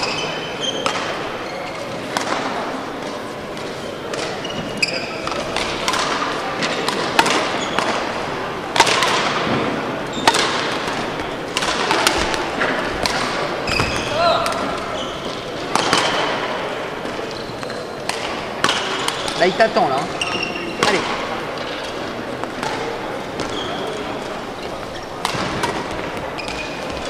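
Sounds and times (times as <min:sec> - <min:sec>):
shoe squeaks on court floor: 0:00.0 - 0:02.2, 0:03.9 - 0:05.4, 0:07.4 - 0:07.9, 0:13.6 - 0:15.5, 0:17.2 - 0:18.1, 0:20.1 - 0:21.0, 0:23.3 - 0:24.2, 0:26.3 - 0:27.0
racket hitting shuttlecock: 0:00.7 - 0:01.2, 0:02.0 - 0:04.4, 0:05.2 - 0:09.5, 0:10.2 - 0:16.5, 0:18.0 - 0:19.4, 0:25.2 - 0:27.0.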